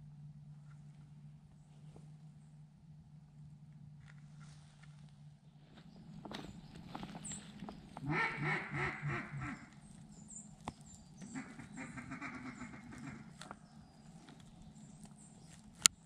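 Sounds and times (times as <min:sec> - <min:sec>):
duck quacking: 0:08.0 - 0:09.8, 0:11.2 - 0:13.6.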